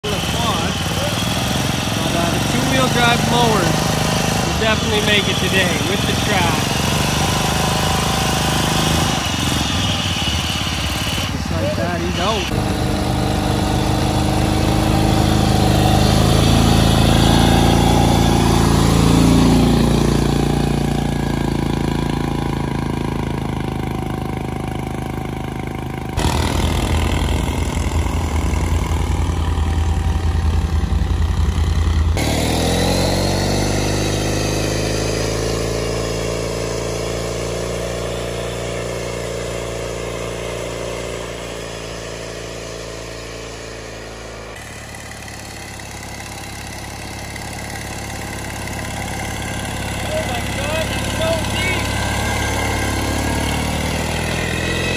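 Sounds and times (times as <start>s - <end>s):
lawnmower engines revving: 0.0s - 54.9s
deep rumble: 26.2s - 32.2s.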